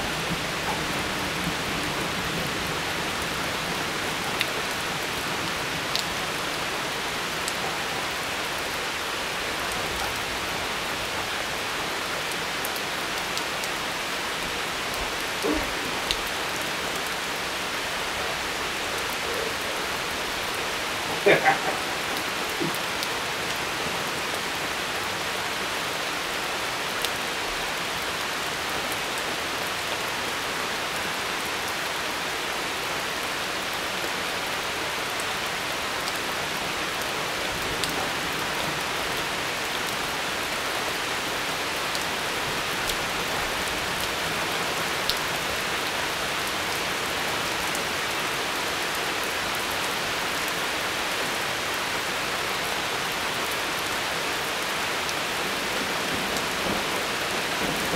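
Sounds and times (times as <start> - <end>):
heavy rain: 0.0 - 57.9.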